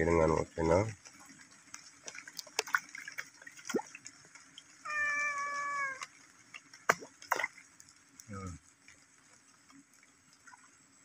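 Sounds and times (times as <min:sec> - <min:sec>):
hand splashing pond water: 0:02.0 - 0:04.1, 0:04.9 - 0:07.6
drawn-out animal cry: 0:04.7 - 0:06.3.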